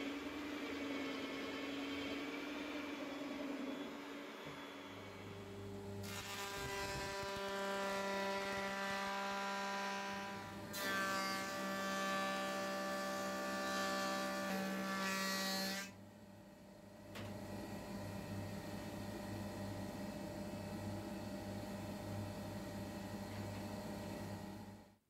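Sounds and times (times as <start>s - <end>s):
electric power tool whining: 0.1s - 8.7s.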